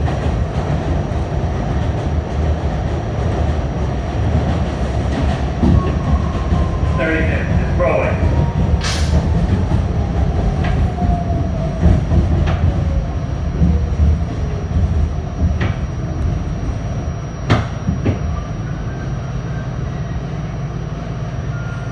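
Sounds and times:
subway train rumble: 0:00.0 - 0:21.9
whine falling in pitch: 0:13.4 - 0:19.9.

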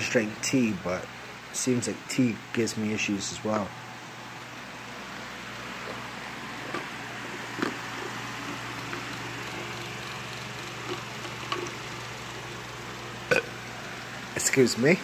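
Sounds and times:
background hum and hiss: 0:00.0 - 0:15.0.

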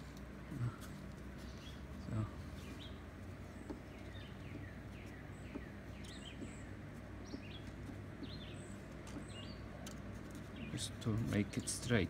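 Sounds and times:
birds chirping: 0:00.0 - 0:12.0
steady low hum: 0:00.0 - 0:12.0.

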